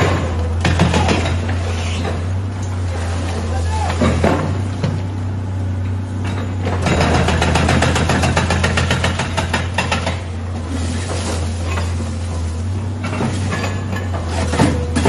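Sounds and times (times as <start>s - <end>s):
excavator engine running: 0.0s - 15.0s
clattering knocks of rubble: 12.9s - 15.0s.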